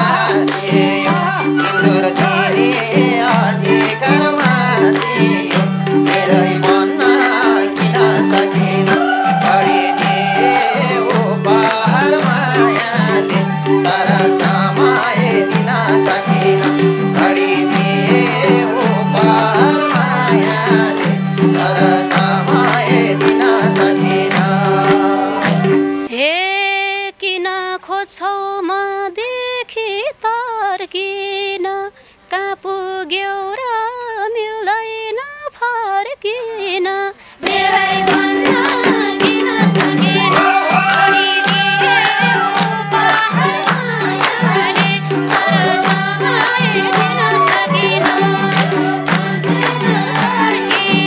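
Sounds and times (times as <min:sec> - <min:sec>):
hand drums beating: 0:00.0 - 0:26.1, 0:37.4 - 0:51.0
harmonium: 0:00.0 - 0:26.9, 0:36.5 - 0:51.0
women singing: 0:00.0 - 0:51.0.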